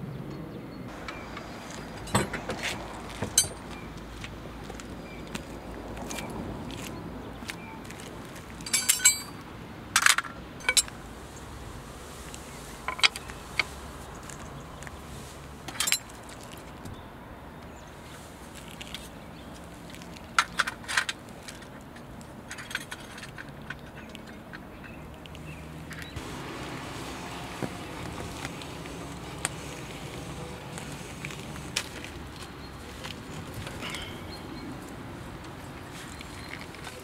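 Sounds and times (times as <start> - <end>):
metallic clinks of wrench: 8.7 - 9.4.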